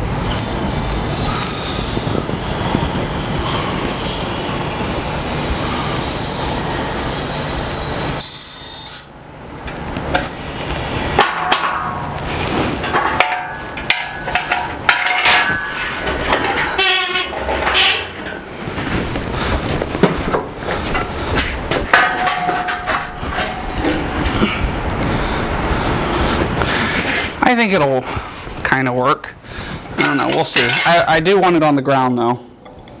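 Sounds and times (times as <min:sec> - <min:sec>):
hydraulic hiss and squealing whine: 0:00.2 - 0:09.2, 0:10.1 - 0:11.2.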